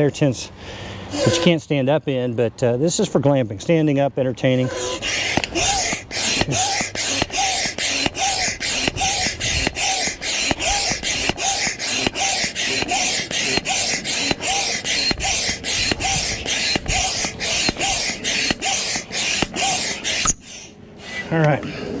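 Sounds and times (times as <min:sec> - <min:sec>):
hand pump air rushes: 0:01.1 - 0:01.6, 0:04.6 - 0:21.5
pump squeak: 0:01.1 - 0:01.6, 0:04.5 - 0:21.4.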